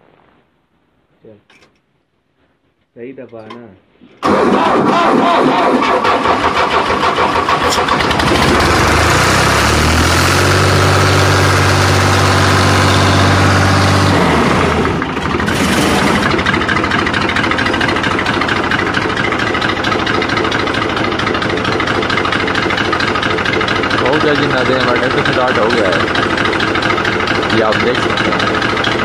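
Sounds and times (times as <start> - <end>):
tractor diesel engine revving: 4.2 - 29.0.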